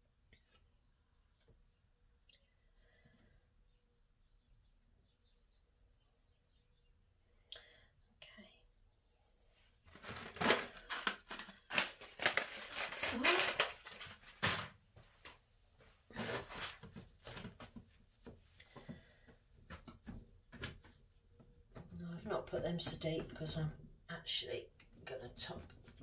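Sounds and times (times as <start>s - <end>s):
compost rustling against plastic: 9.8s - 20.8s.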